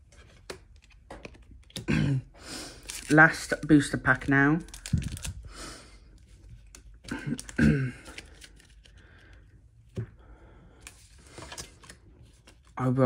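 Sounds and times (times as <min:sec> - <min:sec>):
cards clicking and rustling: 0:00.2 - 0:01.9, 0:02.8 - 0:05.4, 0:06.3 - 0:09.4, 0:10.8 - 0:12.8.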